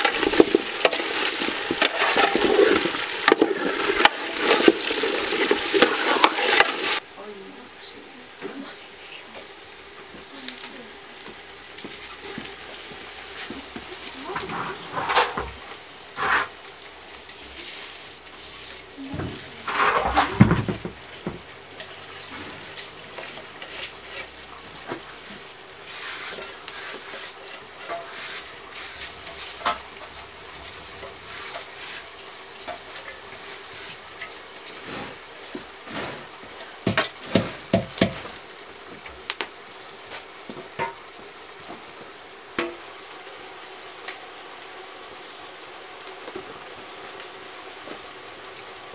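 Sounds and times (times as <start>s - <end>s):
rice sliding into metal pot: 0.0s - 7.0s, 14.4s - 16.6s, 19.4s - 20.8s
rice sizzling in pot: 0.0s - 48.9s.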